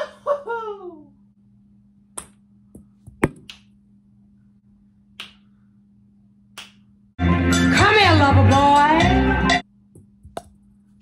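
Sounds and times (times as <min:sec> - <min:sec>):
golf club striking ping pong ball: 0:02.2 - 0:03.7
plastic ball bouncing: 0:02.2 - 0:03.7, 0:09.9 - 0:10.6.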